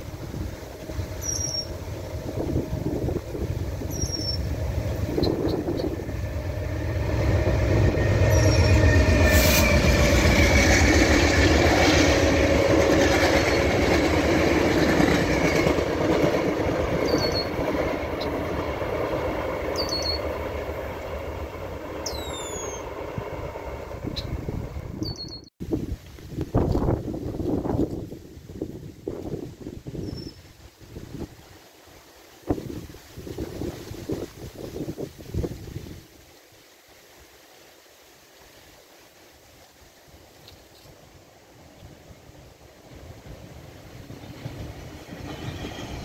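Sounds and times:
train rumbling past: 0.0 - 25.8, 41.0 - 46.0
birds chirping: 3.9 - 4.5.

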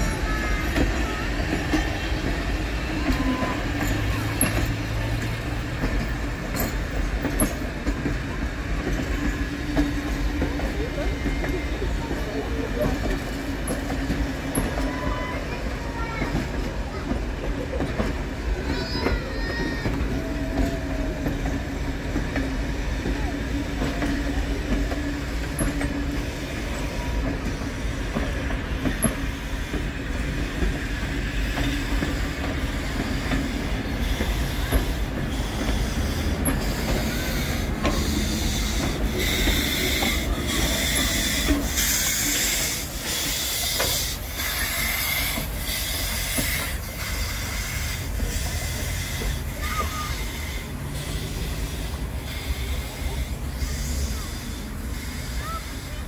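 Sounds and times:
train wheels clicking over rail joints: 0.0 - 56.0
steam hiss: 19.4 - 56.0
wheel squeal: 31.2 - 56.0.

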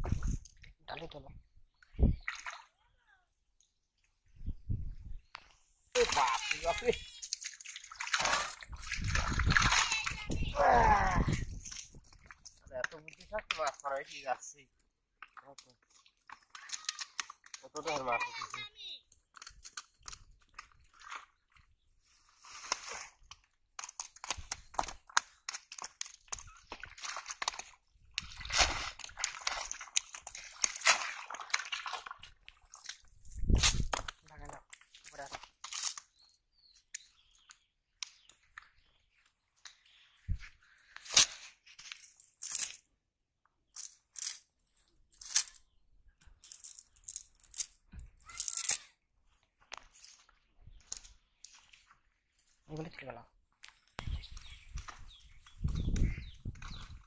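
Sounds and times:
net splashing in water: 6.0 - 10.2, 25.5 - 33.0.

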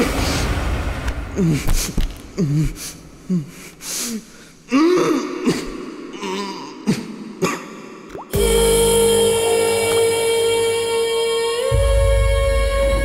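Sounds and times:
loud hit: 0.0 - 2.9.

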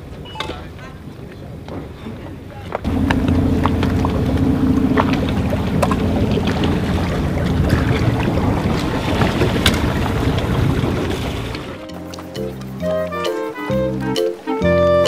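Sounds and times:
boat motor running: 2.8 - 12.6.

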